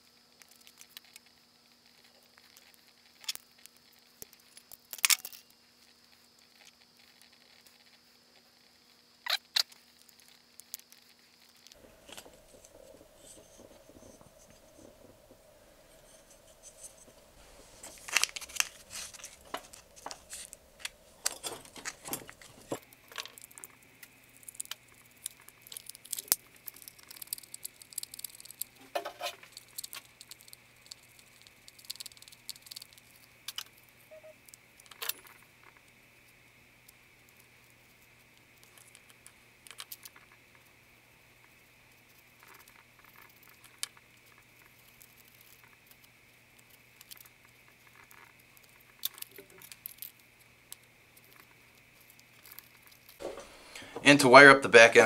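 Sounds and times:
small hand tools clicking and scraping: 9.5 - 33.8, 42.2 - 54.4.

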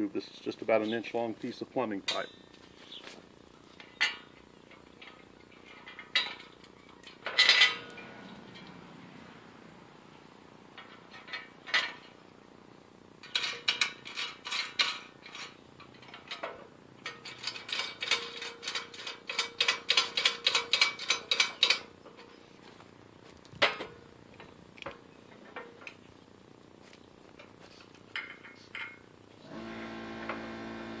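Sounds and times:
metal clunk: 7.1 - 8.9.

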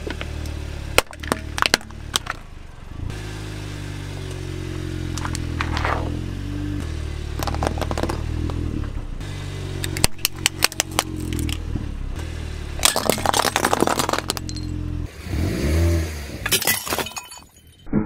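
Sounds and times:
car engine revving: 0.0 - 16.6
car engine running: 0.0 - 16.9
toys cracking under tyre: 1.0 - 2.4, 7.4 - 8.6, 9.8 - 11.6, 12.8 - 14.6.

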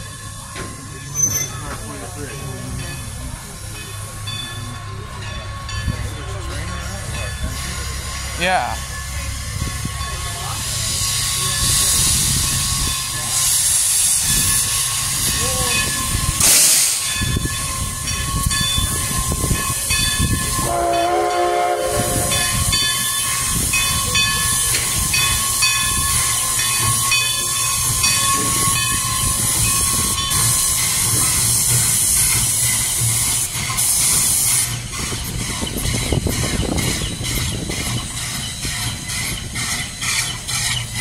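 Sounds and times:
steam locomotive moving slowly: 0.0 - 41.0
hiss of escaping steam: 10.5 - 40.4
loud burst of steam: 16.3 - 17.3
steam whistle blast: 20.6 - 22.6.

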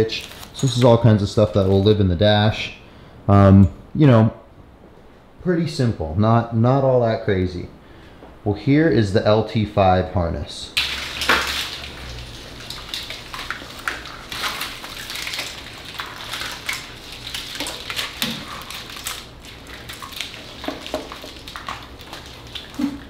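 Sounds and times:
packaging rustling: 0.0 - 1.9, 10.8 - 23.0.

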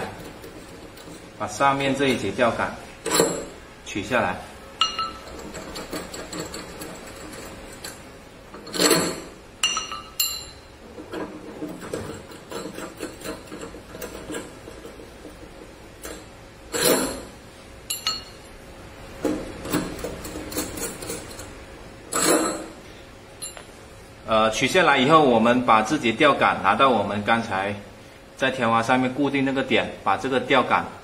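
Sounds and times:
metal rods clinking and knocking: 3.1 - 3.6, 4.8 - 17.3, 17.9 - 18.5, 23.4 - 23.7.

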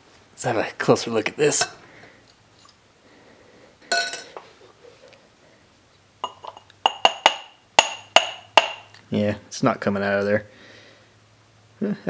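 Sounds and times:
glass clinks: 3.9 - 4.4, 6.2 - 8.9
sharp ringing knocks on glass: 6.3 - 8.9.

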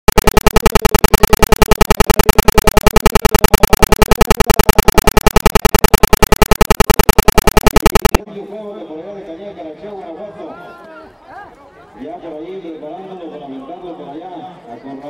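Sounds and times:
harsh pulsing electronic buzz: 0.0 - 8.2.

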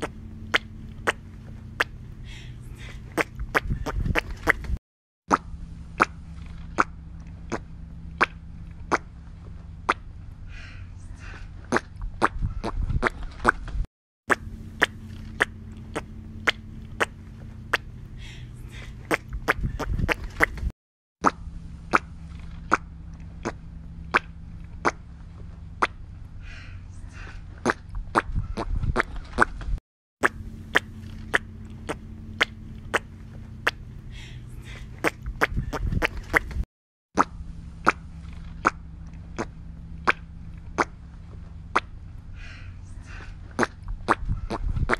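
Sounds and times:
steady low hum: 0.0 - 44.9
man imitating wet footsteps: 2.8 - 6.2, 14.3 - 18.0, 18.7 - 22.1, 27.6 - 33.9, 34.6 - 36.6.

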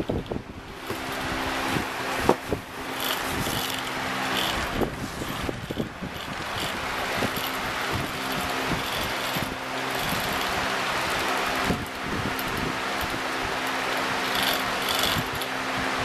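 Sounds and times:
small electric motor whirring: 0.0 - 16.0.

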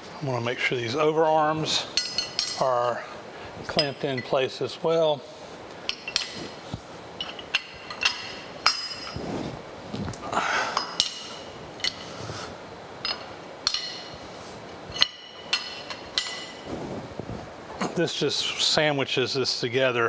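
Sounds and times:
wrench clinking on metal: 2.0 - 2.7, 5.9 - 6.5, 7.2 - 9.2, 10.8 - 12.1, 13.0 - 14.2, 14.9 - 16.7.

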